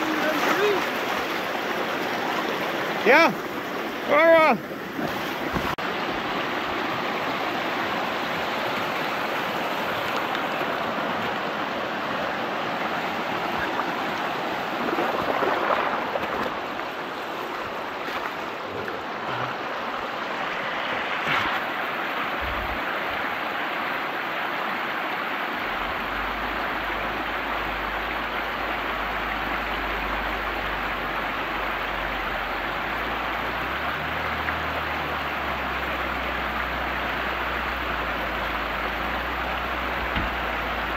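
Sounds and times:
river rapids rushing over rocks: 0.0 - 40.9.

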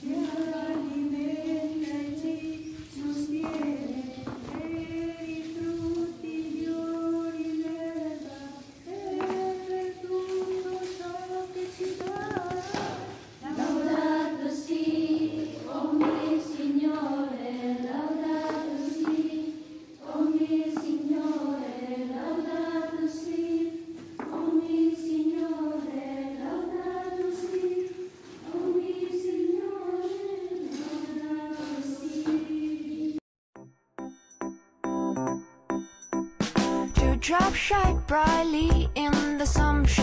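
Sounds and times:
choir of high voices singing: 0.0 - 33.2.

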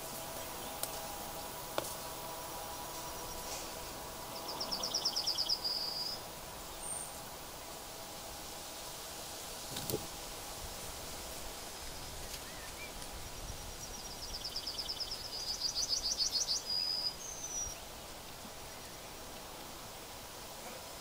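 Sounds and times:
outdoor background hiss: 0.0 - 21.0
small bird singing: 4.3 - 7.8, 11.8 - 19.2.

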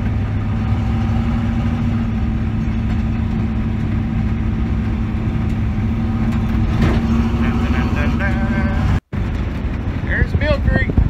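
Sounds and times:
car engine and road drone: 0.0 - 11.0.

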